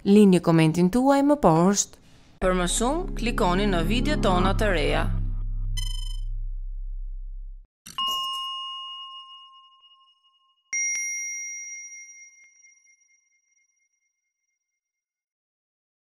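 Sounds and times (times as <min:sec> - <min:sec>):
synthetic chime dings: 0:08.0 - 0:12.9.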